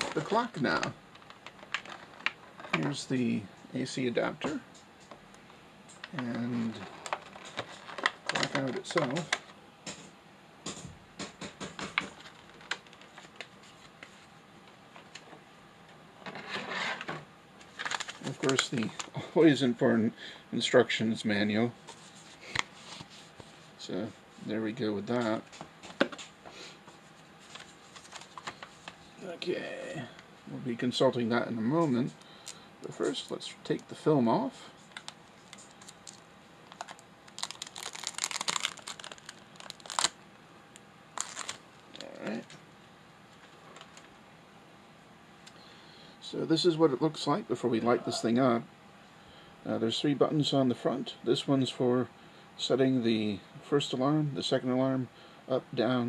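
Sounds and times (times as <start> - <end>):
plastic film crackling: 0.0 - 2.9, 6.0 - 9.4, 17.7 - 19.2, 34.9 - 42.4.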